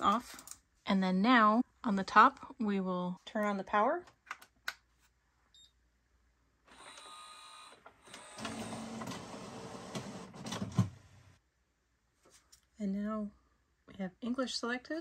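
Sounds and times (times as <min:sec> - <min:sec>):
printer motors whirring and rattling: 0:08.0 - 0:10.8.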